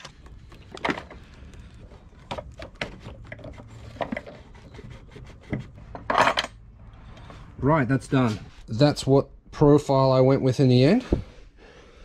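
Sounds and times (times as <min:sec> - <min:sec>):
rubber hose rubbing and clicking: 0:00.0 - 0:06.1.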